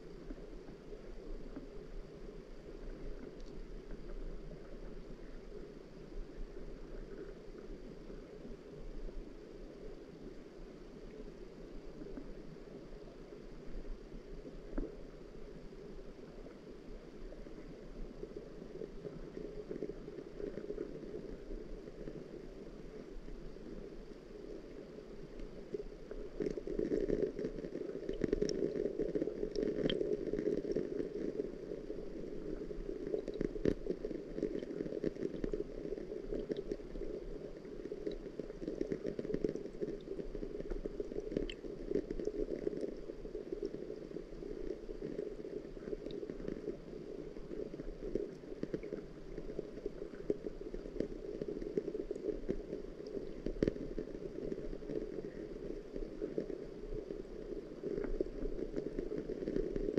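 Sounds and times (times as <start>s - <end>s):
muffled water noise: 0.0s - 59.9s
small clicks and drips: 2.7s - 5.7s, 14.4s - 15.1s, 23.2s - 59.9s.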